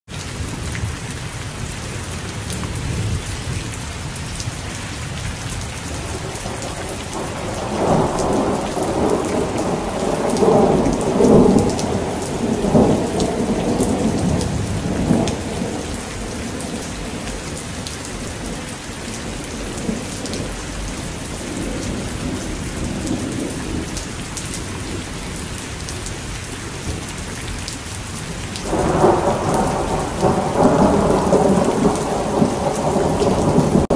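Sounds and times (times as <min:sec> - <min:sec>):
heavy rain falling: 0:00.1 - 0:33.9
thunder rumbling: 0:05.8 - 0:26.0, 0:28.2 - 0:33.9.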